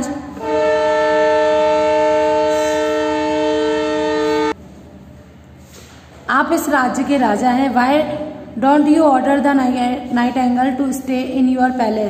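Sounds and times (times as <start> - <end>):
long horn blast: 0.3 - 4.6.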